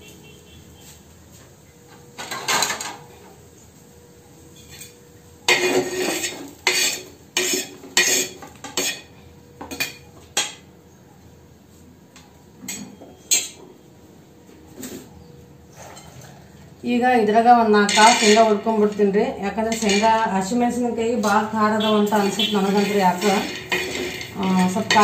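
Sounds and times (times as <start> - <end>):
metal spatula scraping griddle: 4.6 - 9.1, 17.8 - 19.0, 19.6 - 20.5, 21.1 - 25.0.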